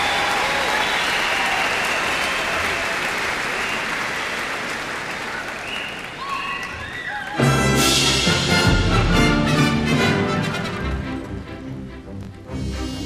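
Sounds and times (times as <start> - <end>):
audience applauding: 0.0 - 7.8
orchestra playing loudly: 7.4 - 13.0.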